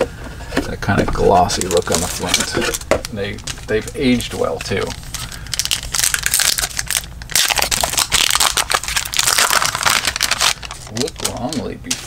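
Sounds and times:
wrapper crinkling: 1.4s - 12.0s.

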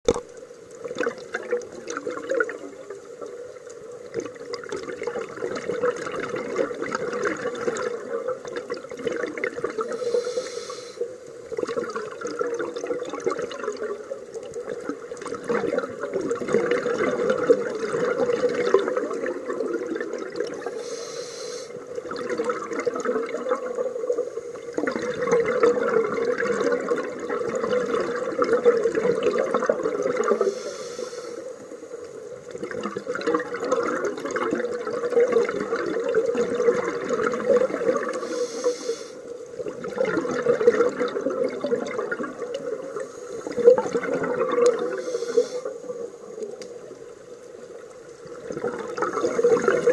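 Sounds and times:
gurgling bubble exhalations: 4.1s - 10.5s, 11.5s - 14.0s, 14.7s - 21.1s, 21.8s - 24.0s, 24.6s - 30.8s, 32.5s - 39.0s, 39.6s - 46.0s, 48.3s - 49.9s
hissing regulator inhalations: 9.8s - 11.1s, 20.7s - 21.8s, 30.3s - 31.7s, 38.2s - 39.3s, 44.8s - 45.8s.

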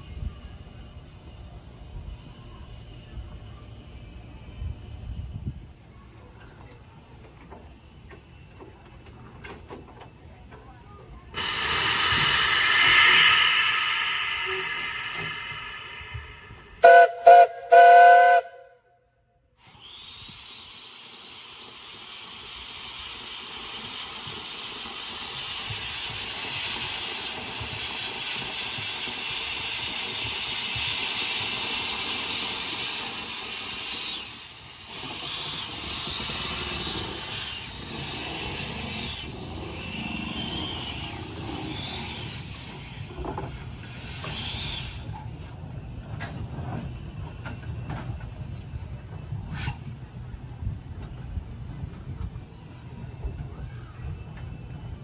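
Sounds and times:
steam engine puffing: 11.3s - 18.4s, 19.6s - 45.2s
steam hissing: 11.3s - 18.4s, 19.6s - 45.4s
steam whistle blasts: 11.4s - 18.9s.

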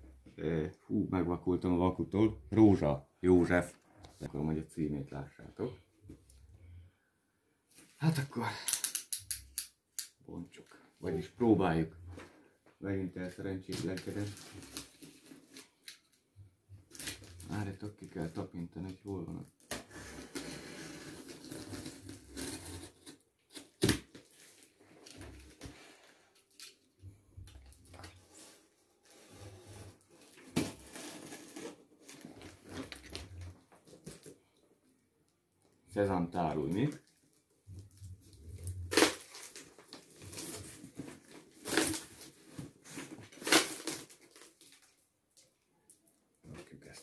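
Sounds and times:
cardboard scraping: 28.1s - 33.6s.

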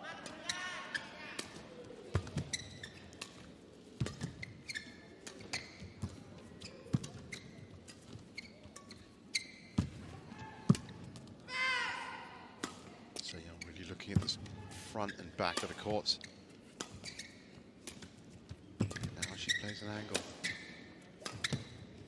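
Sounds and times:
shoes squeaking on court: 0.2s - 10.0s, 13.2s - 22.0s
rackets striking shuttlecock: 15.4s - 16.0s.

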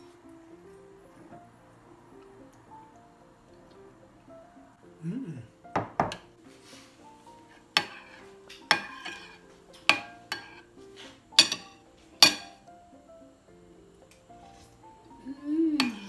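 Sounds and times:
metal spoon clinking on ceramic bowl: 8.7s - 10.6s, 11.4s - 12.6s.

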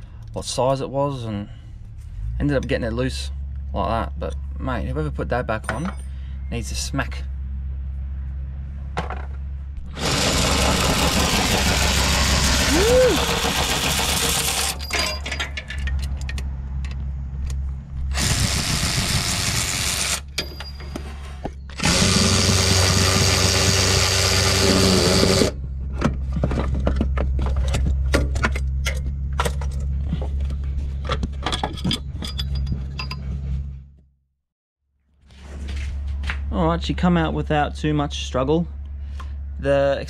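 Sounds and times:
metal clinks of bolts and tools: 5.6s - 6.2s, 14.7s - 17.0s, 20.3s - 21.0s, 31.4s - 33.4s
cordless ratchet motor whining: 9.9s - 14.8s, 18.1s - 20.3s, 21.8s - 25.6s.

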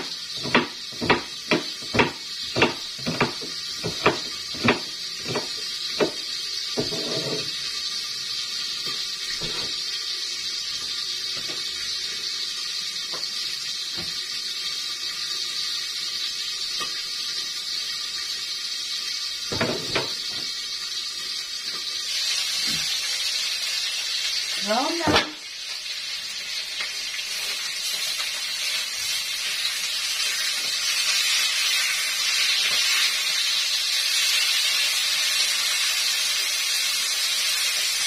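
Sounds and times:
frying hiss from a wok: 0.0s - 38.0s
knife chopping: 0.4s - 6.2s.

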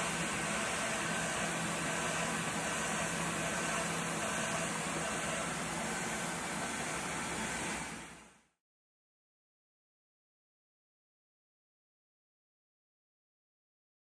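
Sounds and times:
router with dust extraction running: 0.0s - 8.2s.

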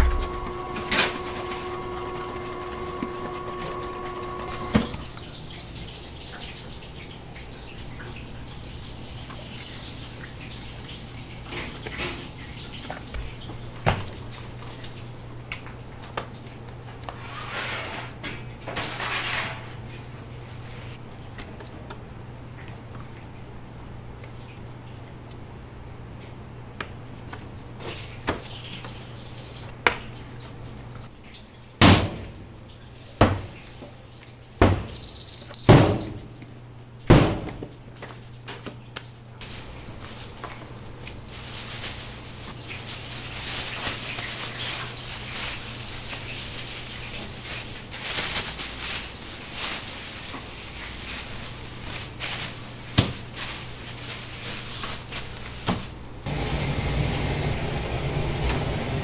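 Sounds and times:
short high beep: 35.0s - 36.2s.

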